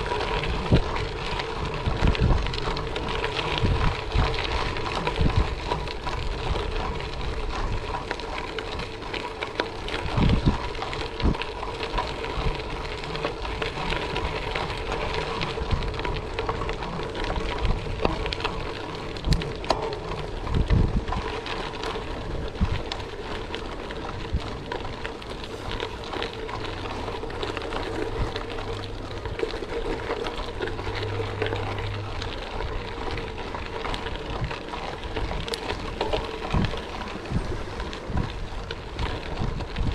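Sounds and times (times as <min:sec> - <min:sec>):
bike tyres rolling over gravel: 0:00.0 - 0:39.9
faint hum: 0:21.1 - 0:39.4.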